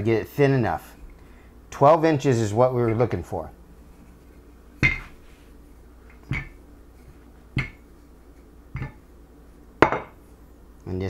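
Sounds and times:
rolling pin knocking on wood: 0:06.1 - 0:06.6, 0:07.5 - 0:07.9.

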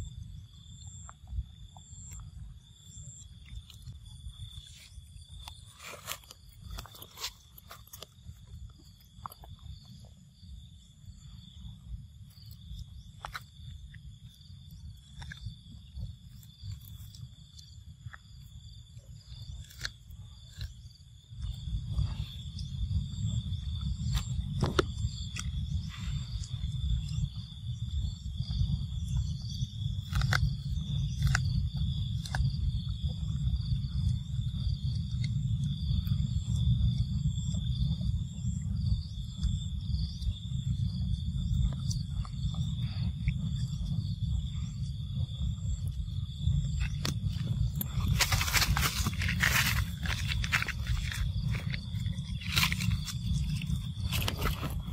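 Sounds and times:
high insect drone: 0:00.0 - 0:54.9
low rumble: 0:20.8 - 0:54.9
monkeys chewing corn: 0:46.8 - 0:54.9.

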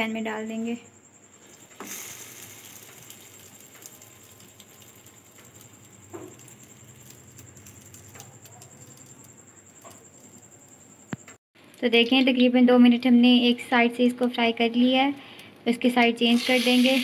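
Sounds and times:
bread sizzling in hot oil: 0:01.3 - 0:09.7, 0:16.2 - 0:17.0.

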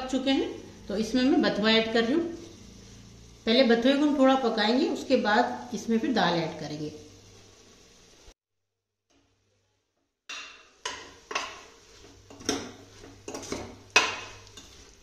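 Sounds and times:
metal ladle scraping a pot: 0:10.8 - 0:15.0.

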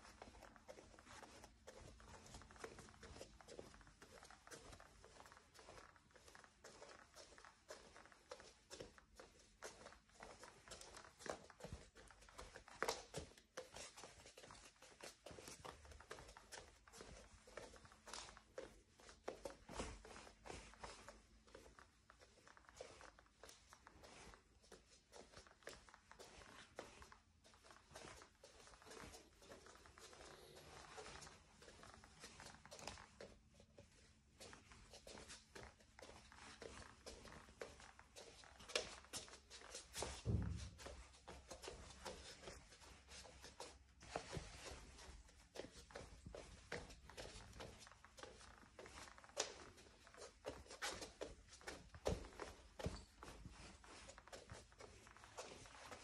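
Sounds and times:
bare footsteps on wooden floor: 0:00.0 - 0:56.0
wooden floor creaking: 0:00.1 - 0:56.0.

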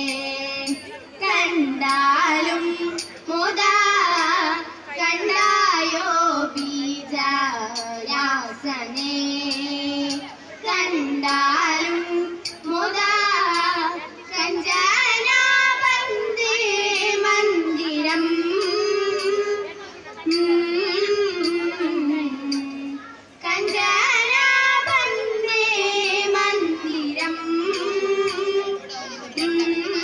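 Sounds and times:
girls singing through pa: 0:00.0 - 0:30.0.

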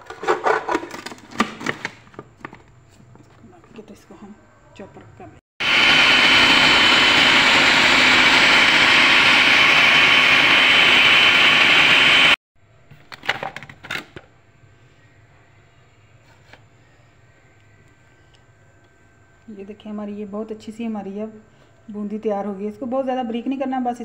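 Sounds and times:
electric food chopper running: 0:05.6 - 0:12.4.

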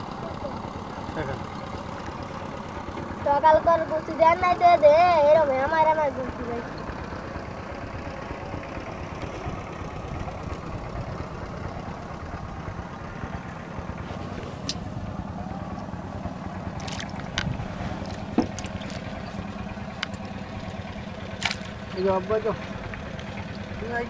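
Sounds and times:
low mechanical drone: 0:00.0 - 0:24.0
sharp clicks and knocks: 0:16.8 - 0:20.8.

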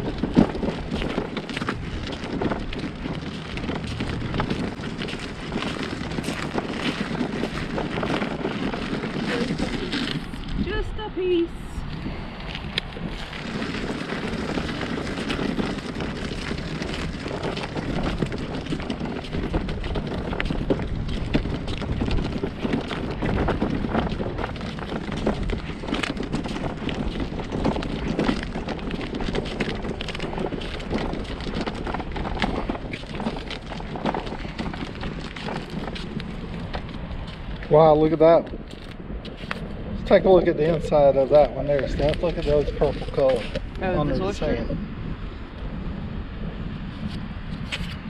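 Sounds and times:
footsteps crunching on shelly sand: 0:00.0 - 0:10.9, 0:11.9 - 0:44.6
wind buffeting microphone: 0:00.0 - 0:48.0.

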